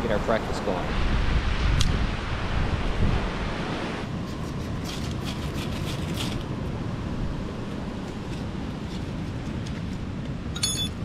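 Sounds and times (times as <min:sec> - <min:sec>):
wind: 0:00.0 - 0:11.0.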